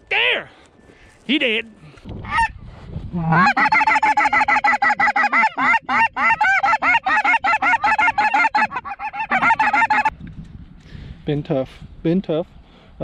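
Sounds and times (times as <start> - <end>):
goose honking: 3.2 - 10.1.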